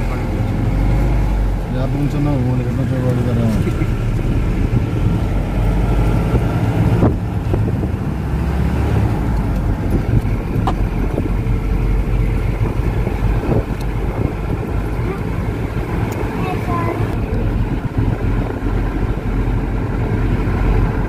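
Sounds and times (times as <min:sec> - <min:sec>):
bus engine and tyres rumbling: 0:00.0 - 0:21.0
body rattles and clicks: 0:09.1 - 0:19.1.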